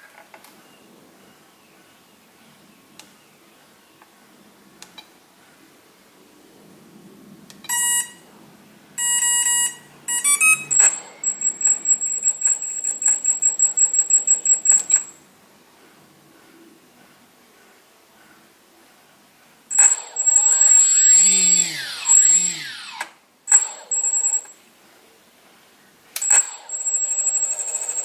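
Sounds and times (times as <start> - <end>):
electronic beeps from motor: 7.7 - 8.2, 9.0 - 15.1, 19.7 - 24.6
high-pitched pulsing beep: 7.7 - 8.2, 9.0 - 15.1, 19.7 - 24.5
rising run of tones: 9.0 - 13.6, 19.7 - 24.2.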